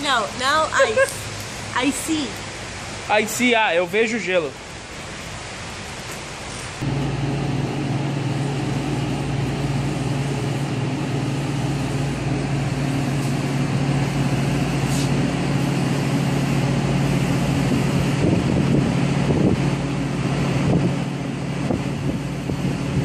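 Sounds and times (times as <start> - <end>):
slush machine motor humming: 6.8 - 23.0.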